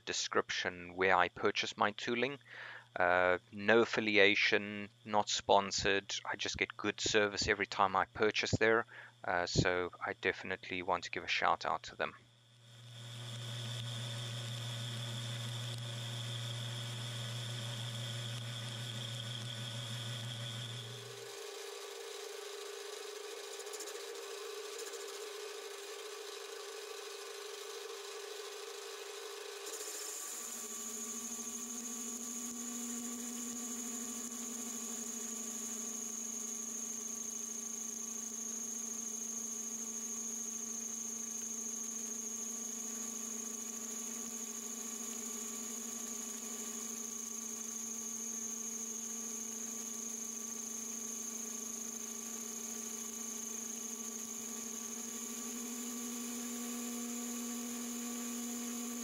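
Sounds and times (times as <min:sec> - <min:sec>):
metal lathe motor hum and whine: 0:12.6 - 0:59.0.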